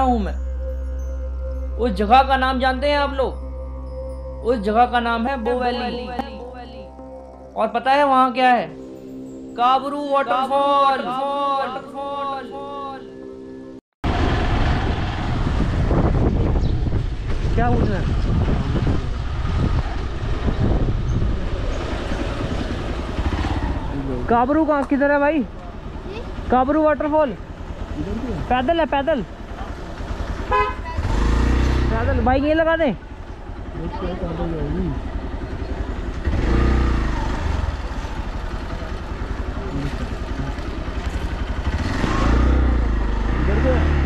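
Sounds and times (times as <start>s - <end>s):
motorcycle running: 14.0s - 44.0s
wind buffeting microphone: 14.1s - 24.3s.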